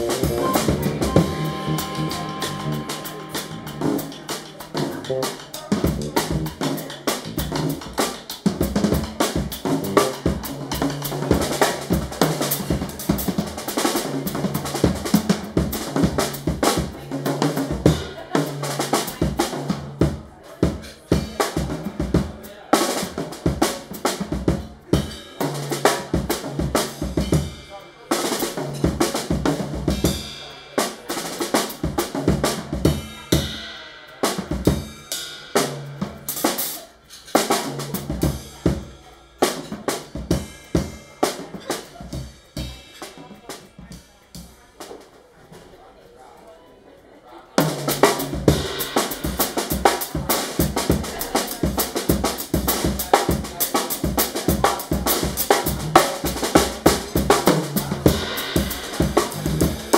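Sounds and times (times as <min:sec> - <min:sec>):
low held note: 0:00.0 - 0:04.2
drum kit playing busy rhythm: 0:00.0 - 0:45.8, 0:47.5 - 0:59.9.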